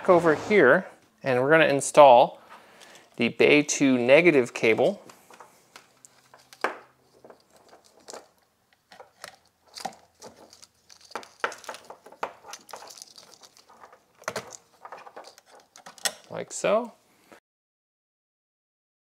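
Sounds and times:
cables rustling: 4.6 - 17.0.

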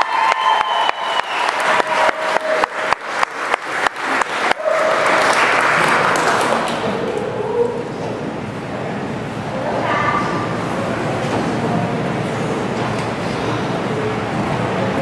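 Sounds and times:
audience clapping in rhythm: 0.0 - 7.1
general applause: 0.0 - 7.3.

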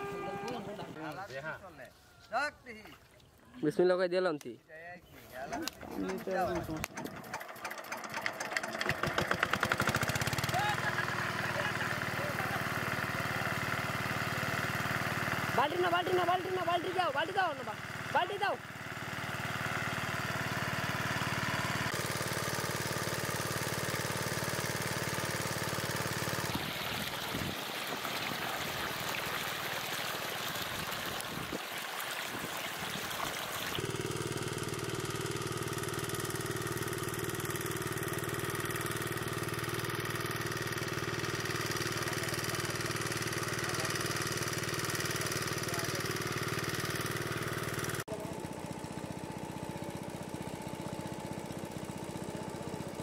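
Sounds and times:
engine water pump running: 5.3 - 53.0
water rushing: 26.3 - 33.8.

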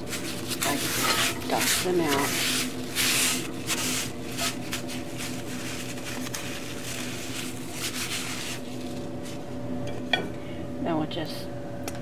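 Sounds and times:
paper towel wiping a skillet: 0.0 - 9.4
steady low hum: 0.0 - 12.0.

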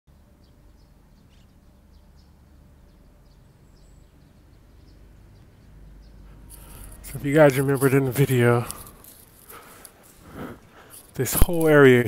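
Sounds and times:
small birds chirping: 0.1 - 12.0
steady low rumble: 3.8 - 11.4.

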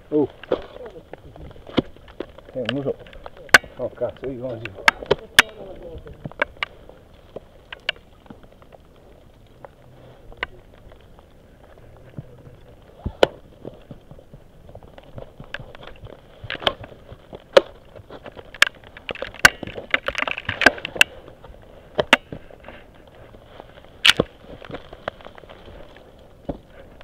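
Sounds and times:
crunching snow: 0.0 - 27.0
ice axes striking hard snow: 0.3 - 2.9.

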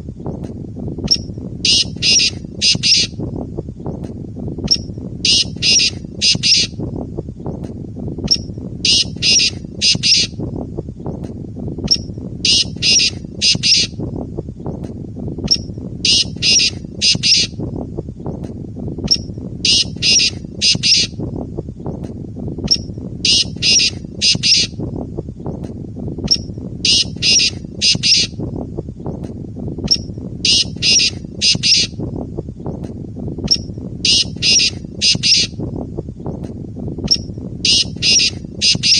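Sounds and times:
francolin calling: 1.7 - 3.2, 5.3 - 6.8, 8.9 - 10.4, 12.5 - 14.0, 16.1 - 17.5, 19.7 - 21.1, 23.3 - 24.7, 26.9 - 28.3, 29.9 - 31.9, 34.1 - 35.5, 37.7 - 38.9.

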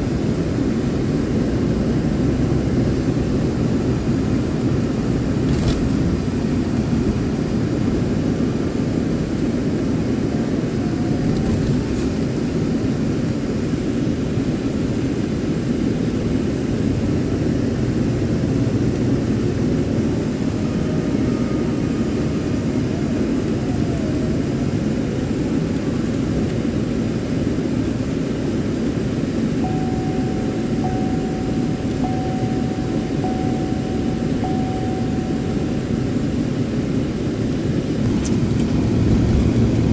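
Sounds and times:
car road and engine rumble: 0.0 - 39.9
faint high tone: 29.6 - 36.2.

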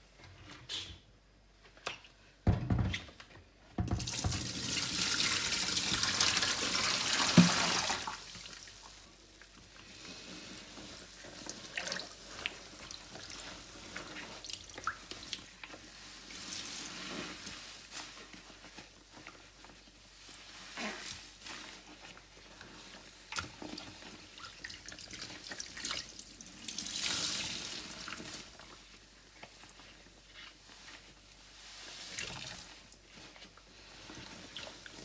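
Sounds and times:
water running: 3.9 - 9.5
wet crackling of soapy sponge: 4.1 - 35.0.

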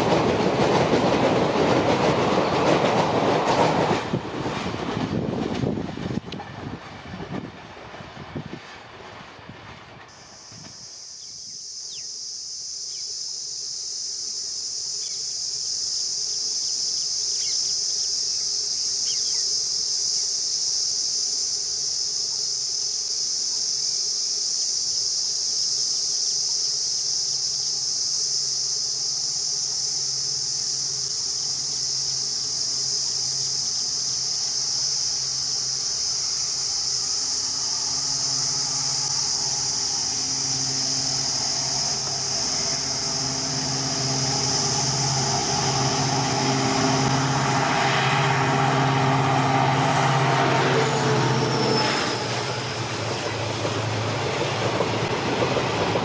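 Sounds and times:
diesel locomotive engine hum: 0.0 - 12.0, 27.4 - 56.0
insects buzzing: 10.1 - 56.0.

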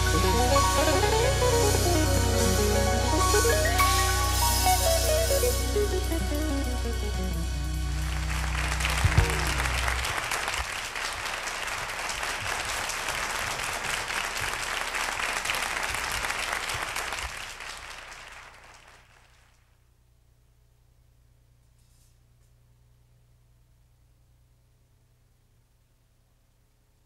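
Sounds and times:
live band playing: 0.0 - 10.7
audience applause: 8.0 - 19.5.

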